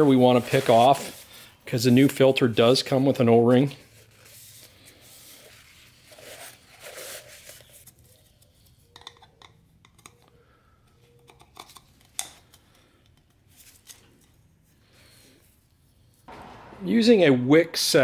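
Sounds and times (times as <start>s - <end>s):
towel rubbing on plastic: 0.0s - 2.3s.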